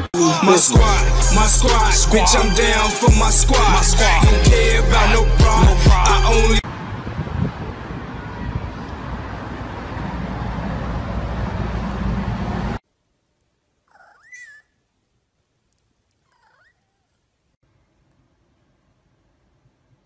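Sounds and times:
cat meowing: 16.3s - 17.1s.

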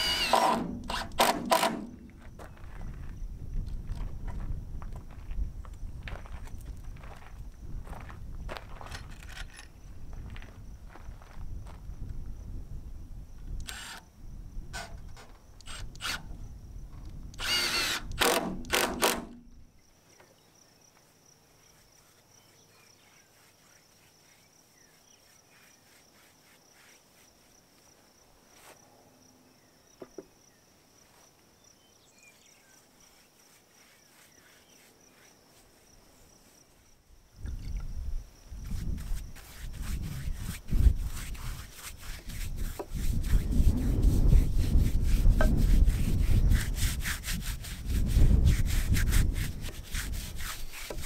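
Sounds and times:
cordless drill motor running: 0.0s - 2.0s, 13.6s - 14.0s, 15.6s - 16.2s, 17.4s - 19.4s
drill clicks: 0.0s - 2.1s, 13.6s - 14.0s, 14.8s - 16.3s, 17.4s - 19.4s.

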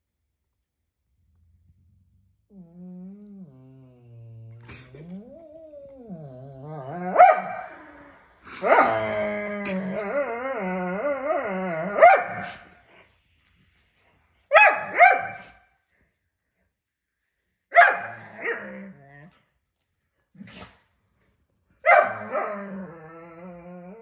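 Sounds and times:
dog barking: 7.2s - 7.6s, 12.0s - 12.6s, 14.5s - 15.6s, 17.7s - 18.6s, 21.8s - 22.6s.

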